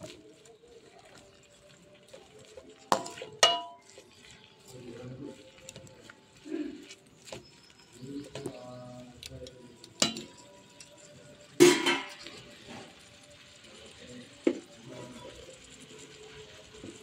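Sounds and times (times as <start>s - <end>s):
spatula stirring greens: 0.0s - 17.0s
spatula knocking on pan: 2.9s - 3.8s.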